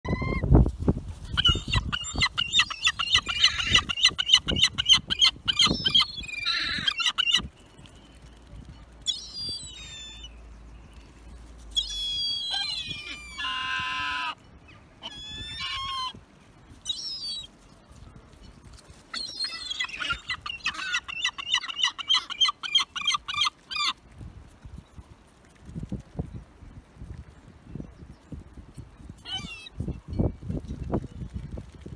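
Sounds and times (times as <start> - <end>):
young gulls squawking: 1.4 - 7.5, 19.2 - 24.0.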